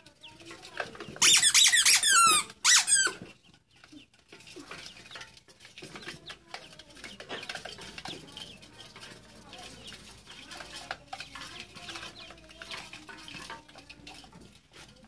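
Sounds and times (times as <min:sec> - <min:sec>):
ducklings peeping: 0:00.1 - 0:14.5
rubber squeak toy squeaking: 0:01.2 - 0:03.3.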